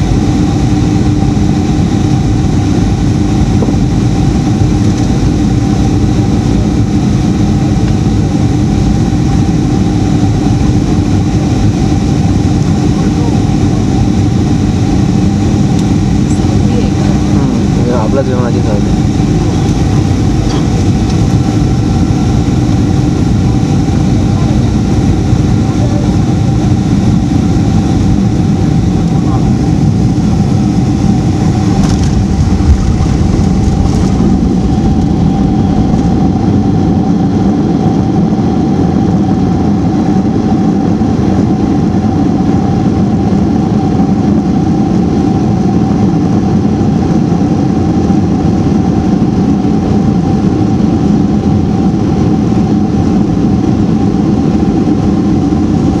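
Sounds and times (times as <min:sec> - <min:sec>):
jet engines whining: 0:00.0 - 0:56.0
loud cabin rumble: 0:00.0 - 0:56.0.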